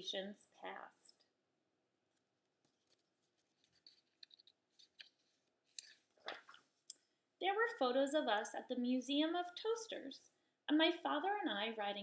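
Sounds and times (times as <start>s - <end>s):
paper pages rustling: 2.1s - 6.8s.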